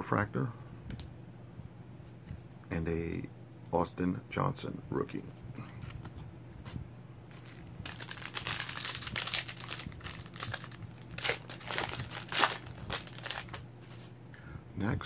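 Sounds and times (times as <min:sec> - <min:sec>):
card pack wrapper crinkling: 0:07.3 - 0:14.1.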